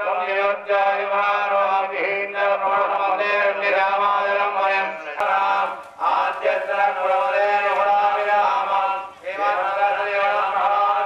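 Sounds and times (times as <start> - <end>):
man chanting into a microphone: 0.0 - 11.0.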